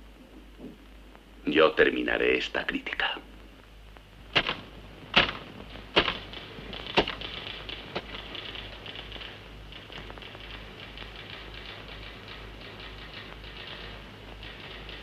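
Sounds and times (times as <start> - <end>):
typewriter keys clattering: 6.0 - 15.0.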